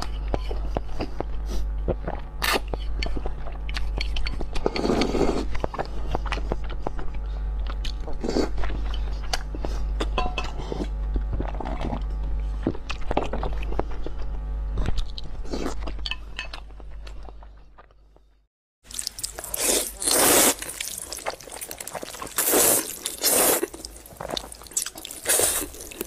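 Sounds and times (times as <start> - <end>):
chewing and mouth smacks: 0.0 - 10.2, 11.1 - 18.0, 18.9 - 26.0
slurping noodles: 4.6 - 5.5, 19.1 - 26.0.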